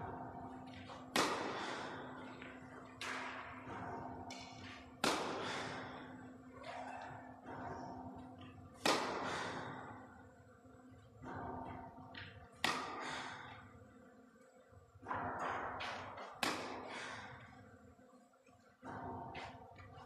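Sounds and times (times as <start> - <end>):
tennis racket striking ball: 0.8 - 5.9, 8.8 - 9.8, 11.2 - 13.6, 15.0 - 17.0.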